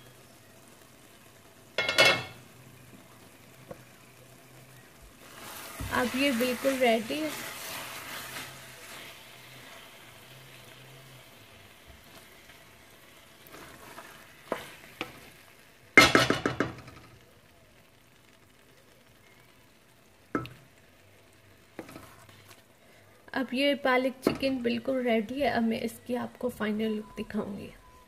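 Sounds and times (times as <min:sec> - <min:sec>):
faint sizzle: 0:00.0 - 0:28.0
spoon stirring thick curry: 0:21.7 - 0:22.5.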